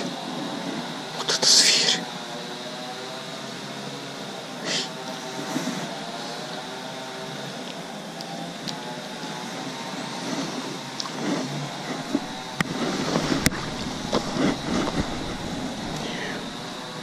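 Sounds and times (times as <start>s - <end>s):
faint hum: 0.0s - 17.0s
camera handling rustles: 11.1s - 16.6s
background rumble: 11.8s - 17.0s.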